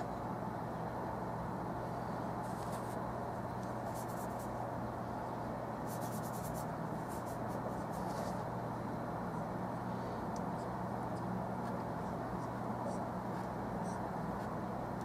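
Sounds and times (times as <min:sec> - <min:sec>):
room noise hum and hiss: 0:00.0 - 0:15.0
paint brush strokes: 0:02.4 - 0:03.0, 0:03.7 - 0:04.6, 0:05.8 - 0:08.5.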